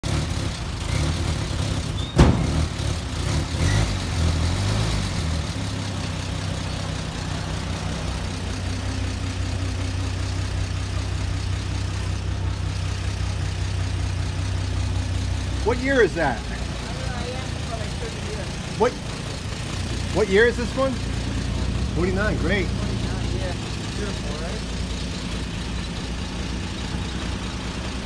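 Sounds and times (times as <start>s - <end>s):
pickup engine idling: 0.0s - 3.6s, 5.2s - 28.0s.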